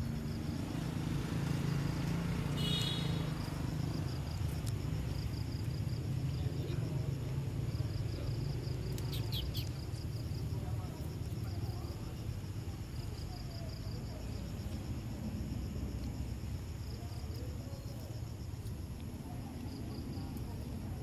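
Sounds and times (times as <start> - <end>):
insects calling: 0.0 - 21.0
sharp bird chirps: 9.0 - 9.8.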